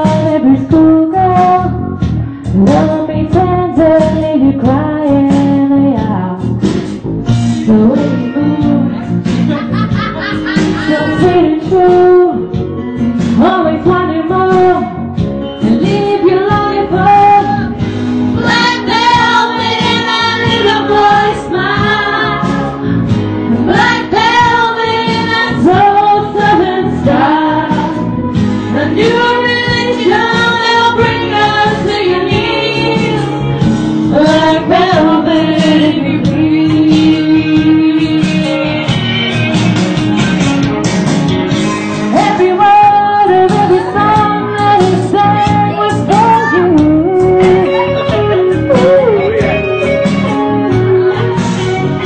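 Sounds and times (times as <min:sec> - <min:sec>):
loud amplified music: 0:00.0 - 0:52.0
person singing: 0:07.5 - 0:12.6, 0:13.4 - 0:39.2, 0:42.0 - 0:51.8.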